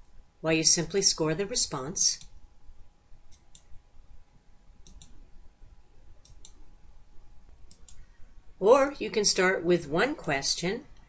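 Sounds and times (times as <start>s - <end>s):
computer mouse clicking: 2.2s - 2.4s, 3.3s - 3.7s, 4.8s - 5.2s, 6.2s - 6.6s, 7.6s - 8.1s.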